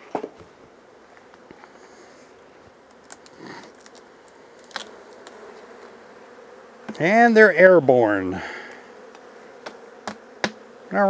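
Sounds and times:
honey bees humming: 0.0s - 11.0s
hive tool clicking and scraping: 2.8s - 5.9s, 6.8s - 7.0s, 8.7s - 10.6s.

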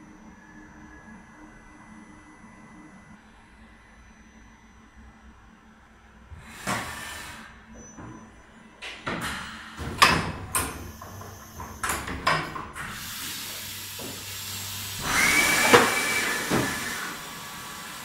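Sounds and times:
air hissing with whistle: 6.4s - 7.7s, 12.9s - 18.0s
machine mechanism clunking: 8.0s - 17.0s.

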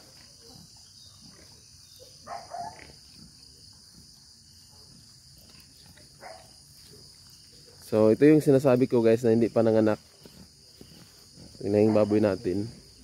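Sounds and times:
pig grunts: 0.0s - 3.6s
high-pitched insect chorus: 0.0s - 13.0s.

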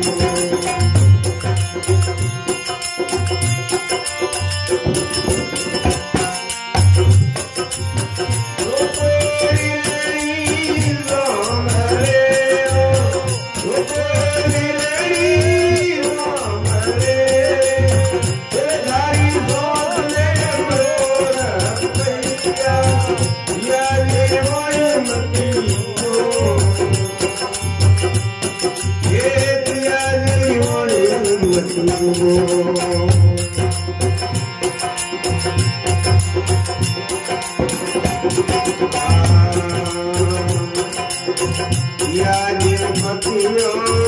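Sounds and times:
harmonium: 0.0s - 44.0s
jingling percussion: 0.0s - 44.0s
man singing into a microphone: 0.0s - 44.0s.

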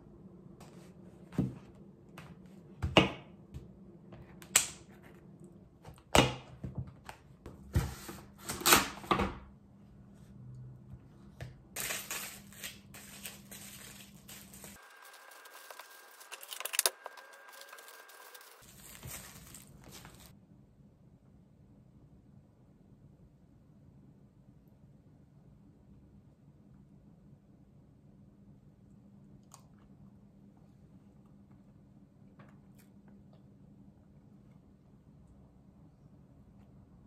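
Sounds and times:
packaging rustling: 11.8s - 20.4s
utensils and containers clicking: 14.4s - 18.6s.

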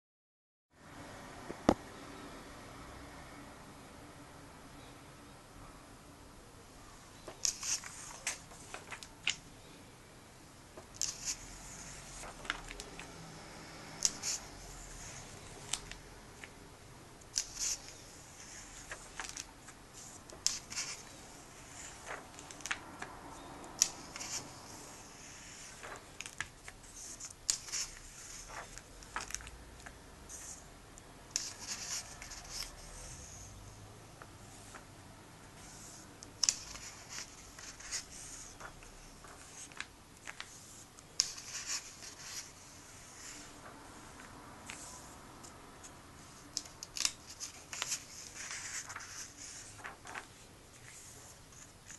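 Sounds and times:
paper pages turning: 7.2s - 9.4s, 10.8s - 13.2s, 13.8s - 16.6s, 17.2s - 30.6s, 31.3s - 33.5s, 35.6s - 51.9s.

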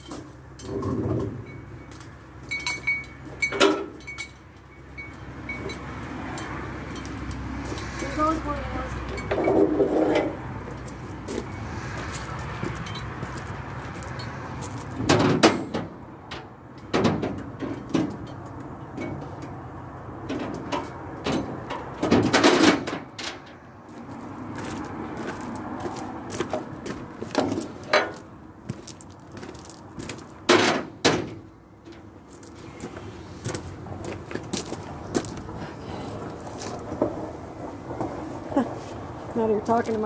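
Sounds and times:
knocks and clunks: 14.8s - 19.6s, 20.2s - 23.6s, 26.4s - 28.8s, 29.4s - 32.5s.

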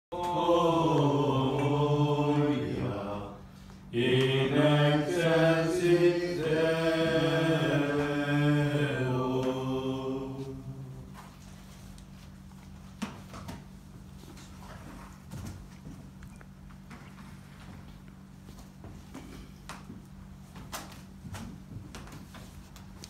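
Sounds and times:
voices singing a chant: 0.1s - 11.2s.

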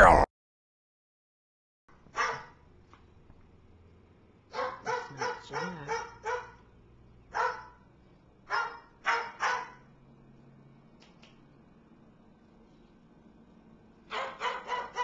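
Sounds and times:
dog barking: 2.1s - 2.6s, 4.5s - 6.7s, 7.3s - 7.8s, 8.5s - 9.9s, 14.1s - 15.0s.

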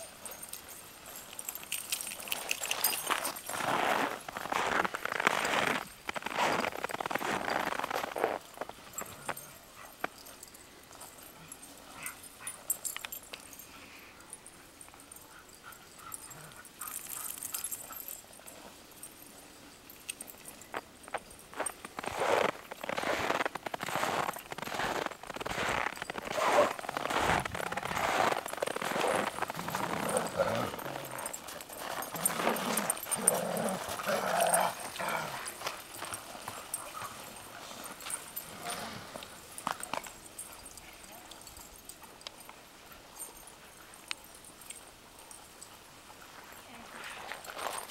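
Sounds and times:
scattered clicks and crunches: 20.1s - 37.1s
dogs growling: 26.3s - 39.3s.

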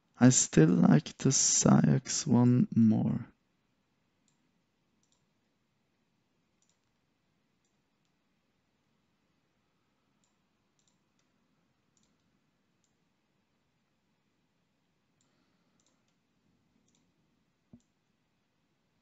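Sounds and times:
computer mouse clicks: 4.2s - 4.4s, 5.0s - 5.4s, 6.6s - 8.2s, 10.1s - 13.1s, 15.2s - 18.2s.

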